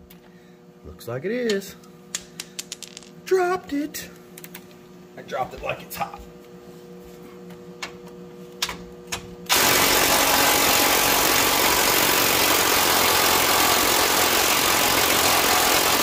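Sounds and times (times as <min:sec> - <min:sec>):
impact wrench hammering: 0:09.5 - 0:16.0.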